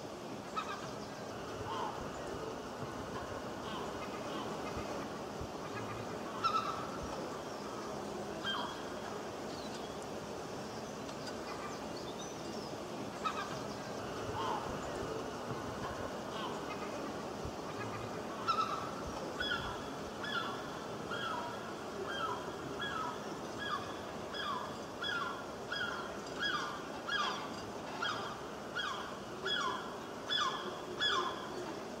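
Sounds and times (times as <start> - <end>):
background hiss: 0.0 - 32.0
gulls calling: 0.0 - 32.0.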